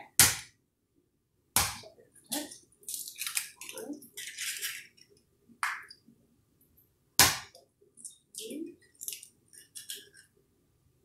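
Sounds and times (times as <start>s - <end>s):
eggshells crackling and rustling: 2.3s - 5.2s.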